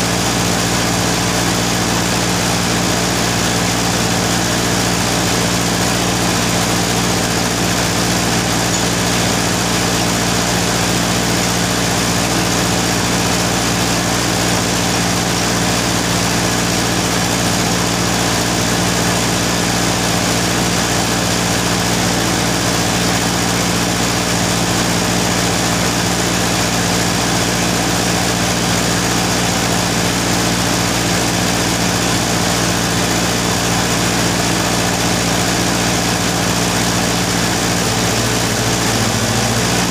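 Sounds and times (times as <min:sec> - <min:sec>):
machinery hum: 0:00.0 - 0:20.8.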